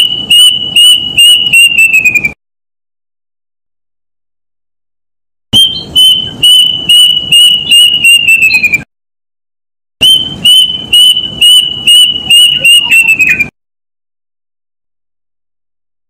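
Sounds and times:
cuckoo singing: 0:00.0 - 0:02.4, 0:05.6 - 0:08.9, 0:10.0 - 0:13.5.

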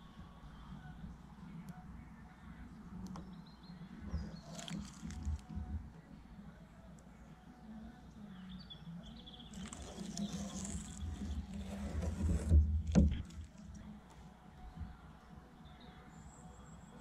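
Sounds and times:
hands rustling tape: 0:04.4 - 0:05.6, 0:09.5 - 0:12.6.

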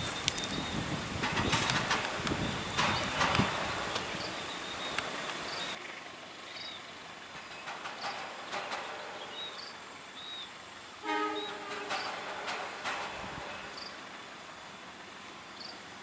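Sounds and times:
faint rail clicks: 0:00.0 - 0:05.8, 0:06.5 - 0:16.0
diesel train running: 0:00.0 - 0:16.0
train horn blast: 0:11.0 - 0:13.8.

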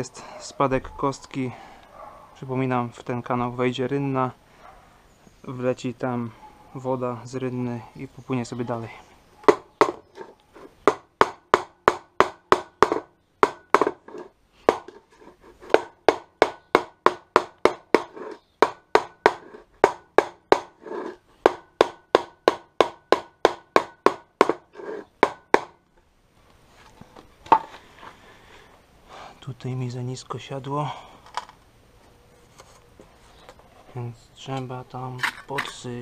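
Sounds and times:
rubber mallet knocking on wood: 0:10.8 - 0:14.0, 0:15.7 - 0:20.7, 0:21.4 - 0:24.6.

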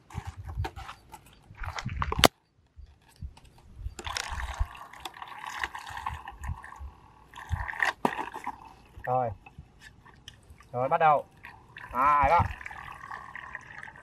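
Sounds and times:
water sloshing and trickling: 0:04.0 - 0:14.0.

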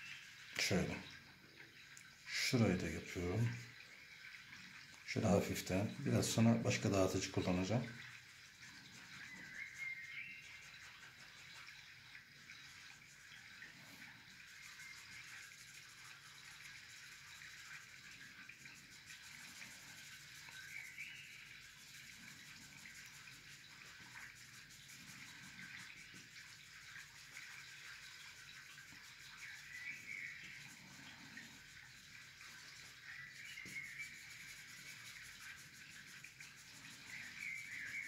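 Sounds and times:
scratchy rubbing on paper: 0:14.4 - 0:38.0.

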